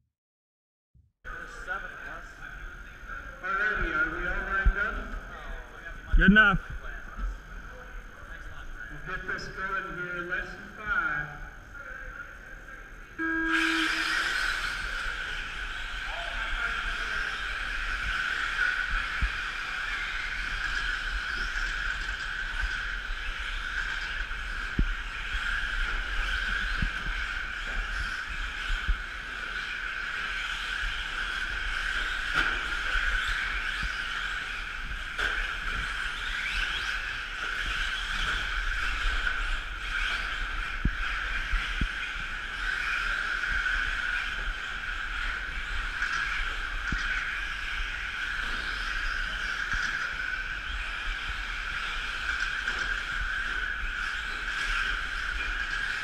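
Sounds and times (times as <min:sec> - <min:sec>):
electric rc truck motors whining: 0:13.2 - 0:15.4.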